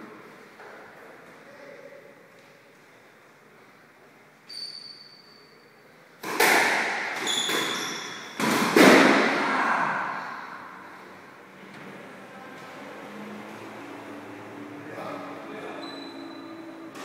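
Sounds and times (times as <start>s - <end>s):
shoes squeaking on court floor: 4.4s - 5.7s, 7.2s - 8.4s, 15.8s - 17.0s
squash ball hits: 6.2s - 9.6s.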